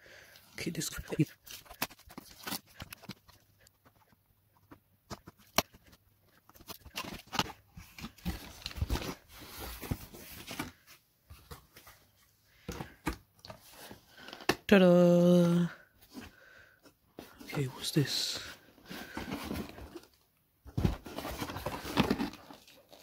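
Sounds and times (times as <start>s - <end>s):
cardboard box being opened: 6.5s - 11.9s, 18.8s - 23.0s.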